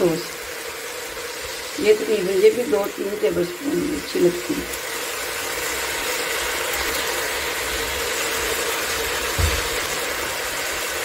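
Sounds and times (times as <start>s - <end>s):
kitchen hiss and hum: 0.0s - 11.0s
dull thump: 9.3s - 9.8s.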